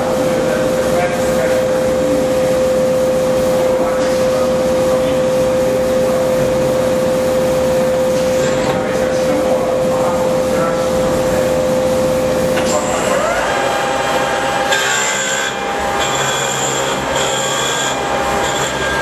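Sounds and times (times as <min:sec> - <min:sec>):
saw cutting marble: 0:12.6 - 0:19.0.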